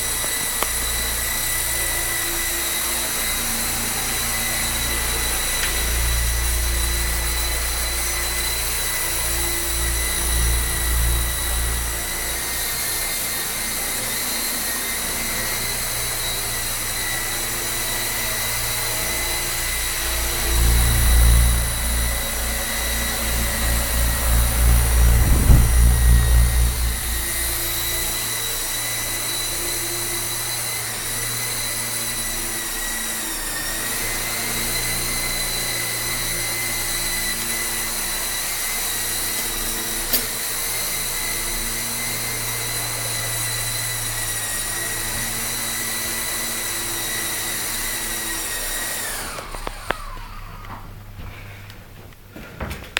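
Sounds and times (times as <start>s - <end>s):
helicopter rotors whining: 0.0s - 29.2s
rotor wash wind rumble: 20.0s - 27.9s.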